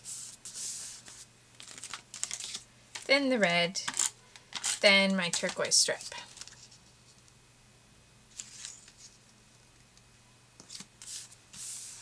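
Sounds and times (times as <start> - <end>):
paper rustling: 0.5 - 3.1, 6.2 - 6.8, 8.3 - 9.2.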